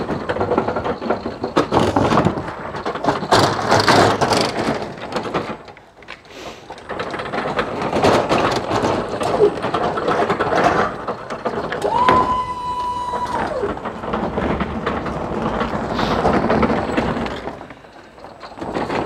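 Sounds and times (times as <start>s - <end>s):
pallet truck rattling over paving: 0.0s - 19.0s.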